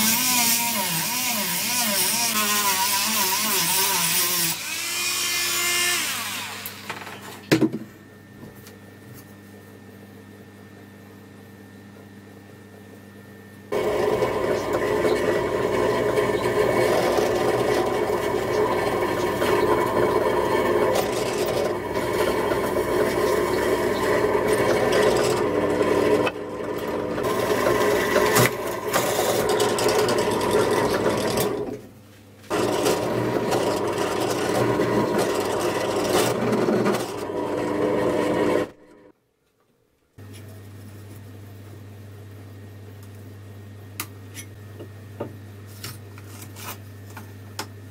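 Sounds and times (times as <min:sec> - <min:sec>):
drill press motor whine: 0:13.7 - 0:31.8, 0:32.5 - 0:39.1
drill bit scraping metal: 0:13.8 - 0:31.6, 0:32.5 - 0:38.9.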